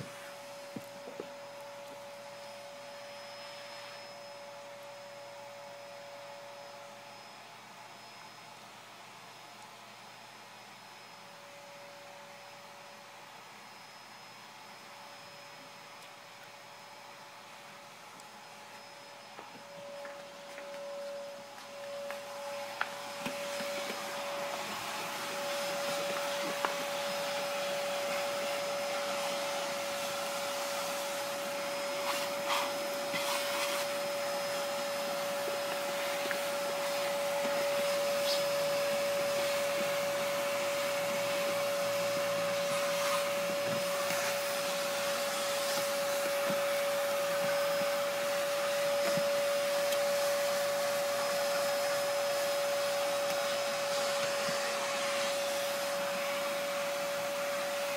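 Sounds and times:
electric motor whining: 0:18.6 - 0:57.9.

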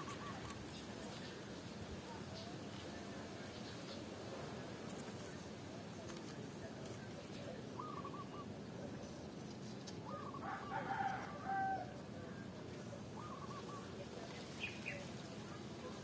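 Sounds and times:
rooster crowing: 0:10.4 - 0:12.0.

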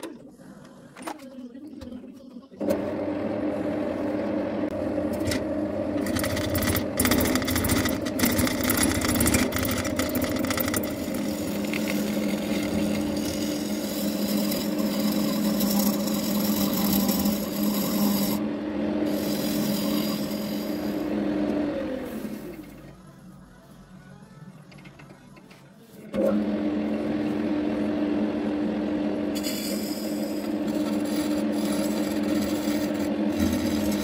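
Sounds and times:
lathe motor hum: 0:02.6 - 0:23.0, 0:26.1 - 0:34.0
turning tool scraping wood: 0:06.0 - 0:18.4, 0:19.0 - 0:21.1, 0:29.3 - 0:34.0.

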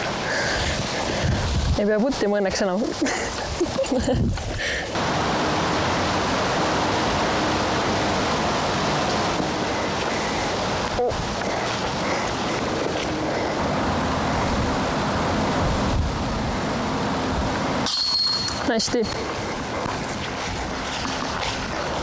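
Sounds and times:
loud rushing noise: 0:05.0 - 0:11.4.

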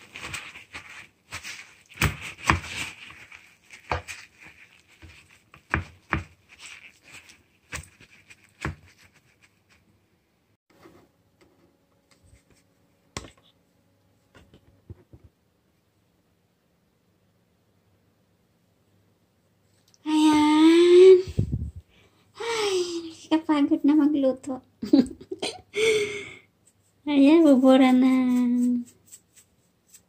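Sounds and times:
paper towel rustling: 0:00.0 - 0:09.9.

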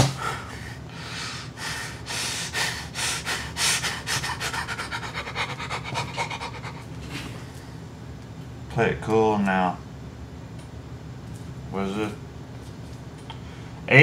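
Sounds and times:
man panting: 0:00.0 - 0:07.4.

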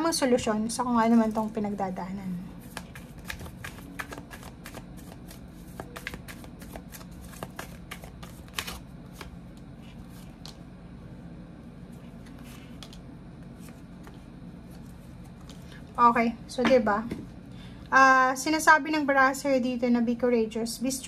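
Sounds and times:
cards shuffling: 0:02.6 - 0:10.6.

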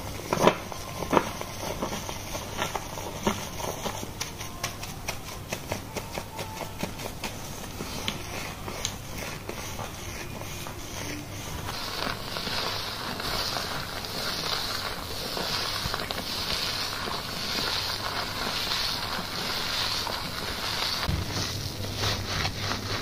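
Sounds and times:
hands scrubbing lathered hair: 0:00.0 - 0:23.0.

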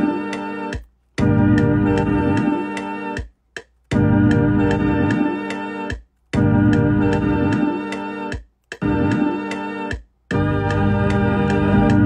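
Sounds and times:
organ-like keyboard chords: 0:00.0 - 0:12.0
low bass line: 0:01.2 - 0:02.5, 0:06.4 - 0:07.6.

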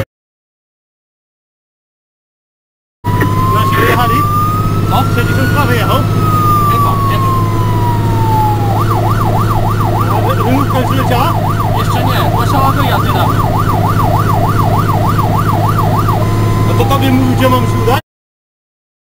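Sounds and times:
fire engine siren wail and yelp: 0:03.1 - 0:18.0
truck engine drone and road noise: 0:03.1 - 0:18.0.

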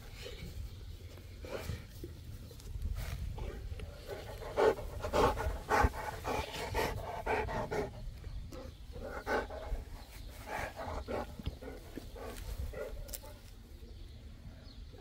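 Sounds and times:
dog panting: 0:03.8 - 0:13.4.

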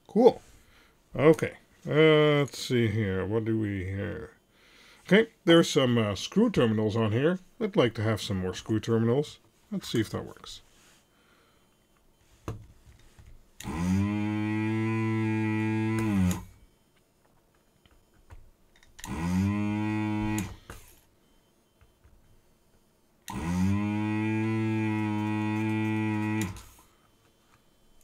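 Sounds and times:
desoldering vacuum pump humming: 0:13.6 - 0:16.9, 0:17.8 - 0:22.4, 0:23.2 - 0:28.0.

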